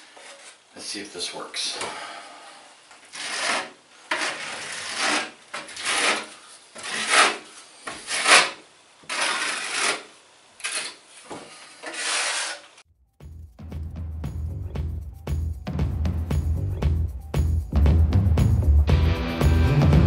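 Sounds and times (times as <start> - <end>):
putty knife scraping: 3.0 - 12.8.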